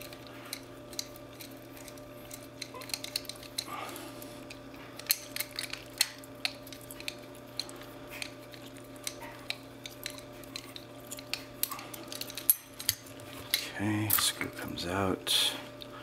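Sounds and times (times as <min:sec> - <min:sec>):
metallic clicks and scrapes: 0:00.0 - 0:14.4
screwdriver turning screw in metal: 0:05.0 - 0:13.6.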